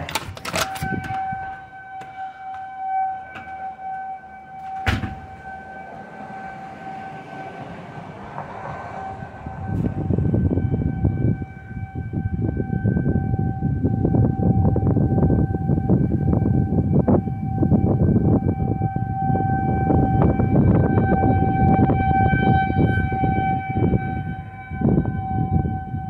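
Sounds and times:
door clicking open: 0.0s - 2.1s
wind on microphone: 0.0s - 2.2s, 4.9s - 26.0s
warning siren wailing: 0.0s - 26.0s
door shutting with a knock: 4.6s - 5.4s.

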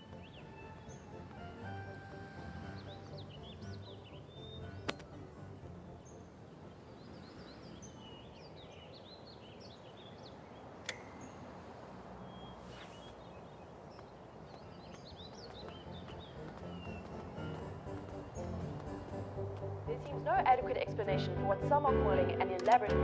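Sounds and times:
small birds chirping: 0.0s - 21.8s
low street hum: 0.0s - 23.0s
sharp click: 10.8s - 11.2s.

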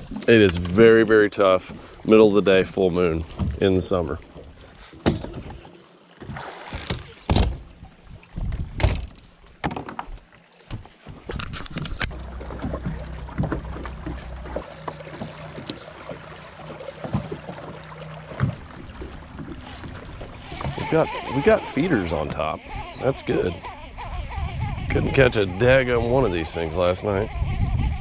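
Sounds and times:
trolling motor humming: 12.0s - 28.0s
gear knocking on boat deck: 12.1s - 19.7s.

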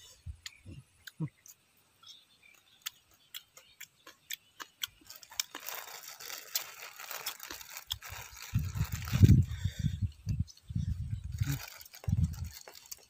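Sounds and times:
plastic bag crinkling: 5.0s - 9.5s, 11.2s - 13.0s.

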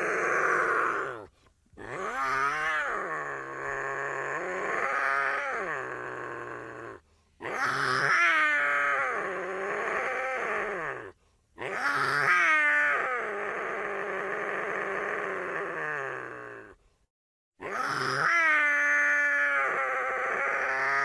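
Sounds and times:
cougar calling: 0.0s - 13.6s.

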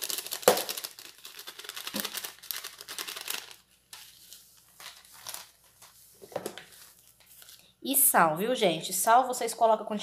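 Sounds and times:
plastic sachet crinkling: 0.0s - 6.0s.

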